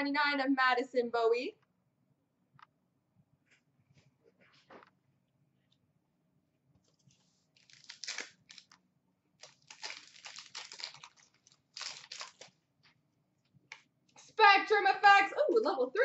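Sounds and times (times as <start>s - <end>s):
foil wrapper tearing and crinkling: 7.5s - 8.8s, 9.4s - 12.6s.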